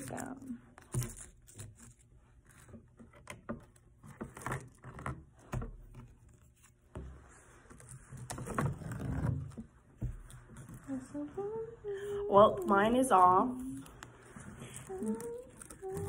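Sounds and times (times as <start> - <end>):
canvas scraping and knocking: 2.5 - 11.1
tape peeled off canvas: 13.6 - 16.0.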